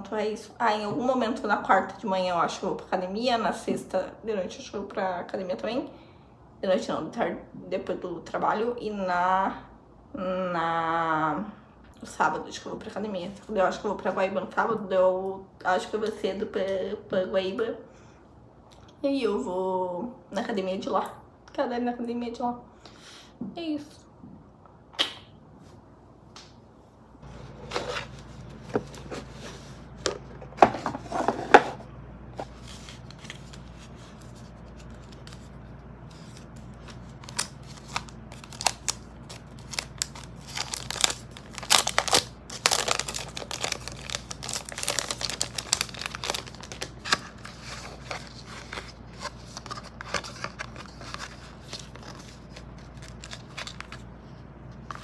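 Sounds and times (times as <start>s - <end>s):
steady low hum: 22.6s - 55.0s
packaging crinkling and tearing: 32.5s - 54.1s.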